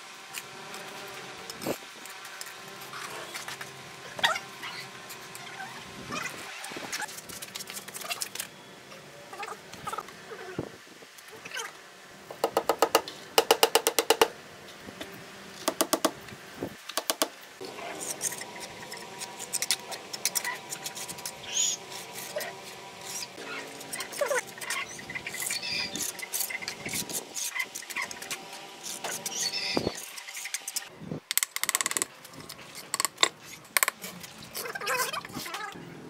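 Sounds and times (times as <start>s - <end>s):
trowel scraping mortar: 17.7s - 30.9s.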